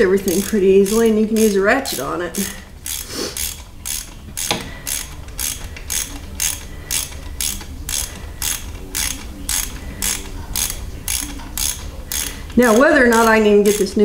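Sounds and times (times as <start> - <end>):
ratchet wrench clicking: 0.2 - 14.0.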